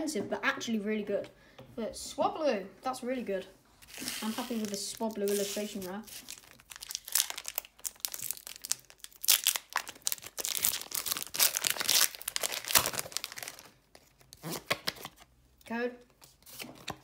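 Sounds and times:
foil wrapper tearing and crinkling: 0:03.8 - 0:15.2.

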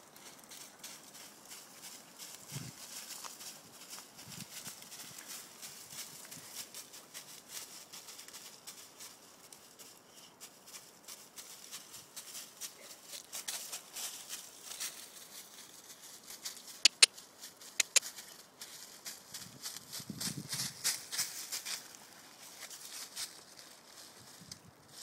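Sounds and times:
footsteps crunching dry leaves: 0:00.0 - 0:25.0
sharp clicks: 0:16.9 - 0:17.1, 0:17.8 - 0:18.1.

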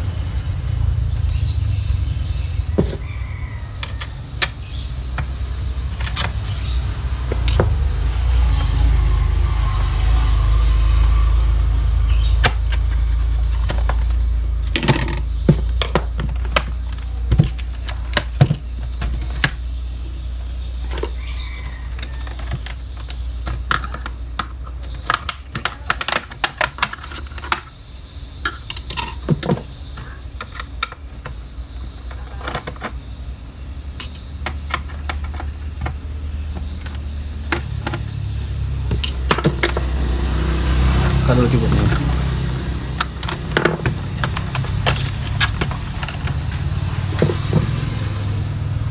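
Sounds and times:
plastic and metal parts clicking: 0:21.9 - 0:27.8, 0:28.4 - 0:33.0.

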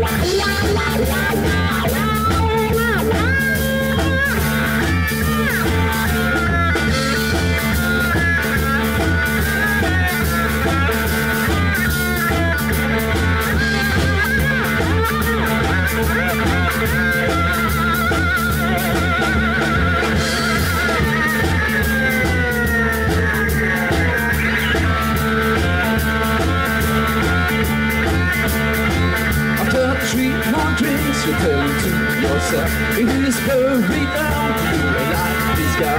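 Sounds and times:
drum kit: 0:00.0 - 0:35.9
electric bass: 0:00.0 - 0:35.9
lap steel guitar sliding notes: 0:00.0 - 0:35.9.

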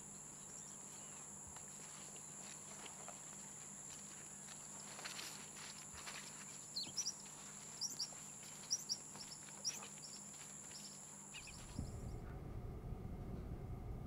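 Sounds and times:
faint high whine: 0:00.0 - 0:14.0
birds chirping: 0:06.3 - 0:11.9
low steady rumble: 0:11.4 - 0:14.0.

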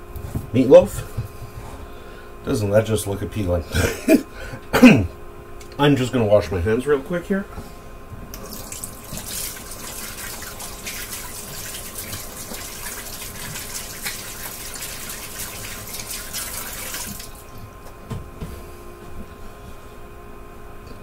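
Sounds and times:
tap water splashing in sink: 0:08.3 - 0:17.6.

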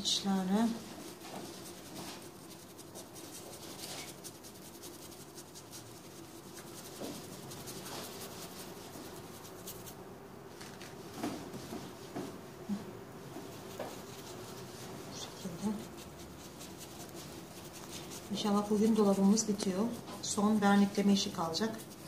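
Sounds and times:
faint steady hum: 0:00.0 - 0:22.0
stencil brush scratching and dabbing: 0:00.1 - 0:10.0, 0:10.7 - 0:22.0.

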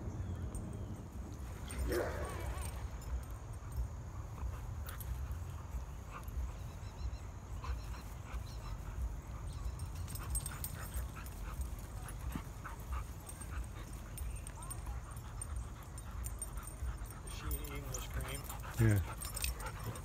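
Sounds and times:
dogs yipping and whining: 0:01.4 - 0:20.0.

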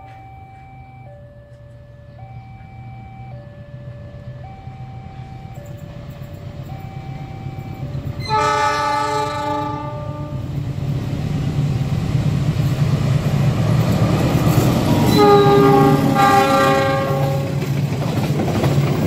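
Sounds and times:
train engine and wheels rumbling: 0:00.0 - 0:19.0
locomotive horn: 0:08.2 - 0:10.6, 0:14.9 - 0:17.7.

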